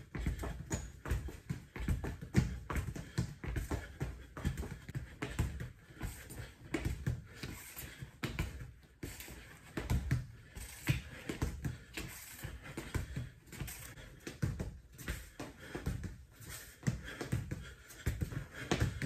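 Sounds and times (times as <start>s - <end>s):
soccer ball soft taps: 0.0s - 19.0s
shoes scuffing on concrete: 9.0s - 14.0s.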